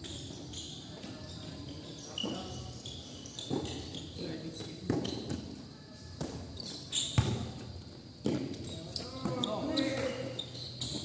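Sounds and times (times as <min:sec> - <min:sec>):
basketball bouncing on concrete: 0:07.2 - 0:07.4.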